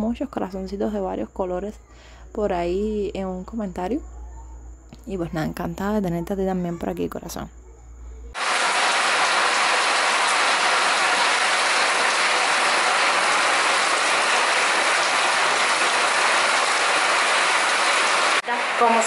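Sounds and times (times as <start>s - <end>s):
heavy rain on concrete: 8.4s - 19.0s.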